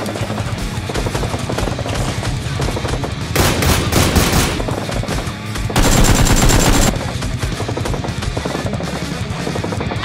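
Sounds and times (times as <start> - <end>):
background music: 0.0 - 10.0
automatic gunfire bursts: 3.4 - 4.8, 5.8 - 7.0.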